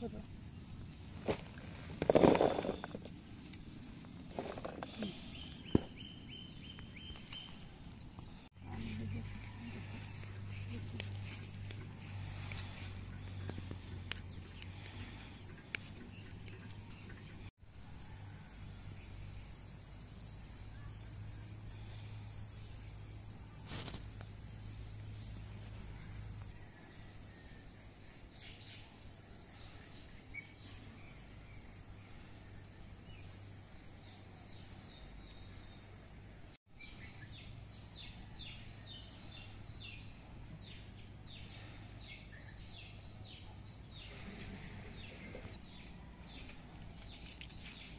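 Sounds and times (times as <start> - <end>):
birds calling: 0.0 - 17.5
insect noise: 0.0 - 47.9.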